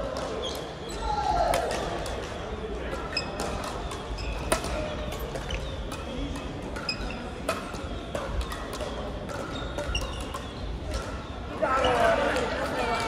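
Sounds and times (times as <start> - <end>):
shoes squeaking on court floor: 0.1 - 1.1, 3.0 - 13.0
racket hits: 1.5 - 11.5.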